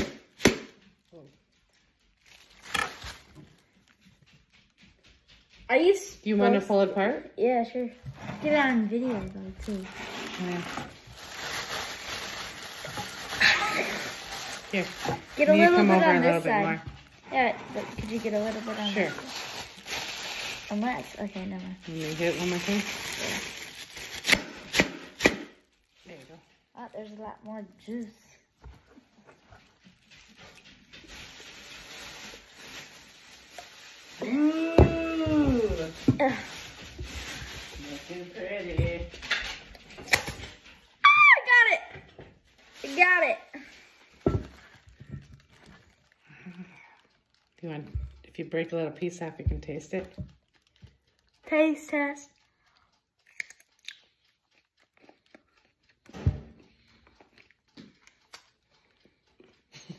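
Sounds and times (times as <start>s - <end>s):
coconut husk crackling: 0.0s - 5.0s, 5.6s - 59.9s
chewing coconut meat: 43.6s - 59.9s.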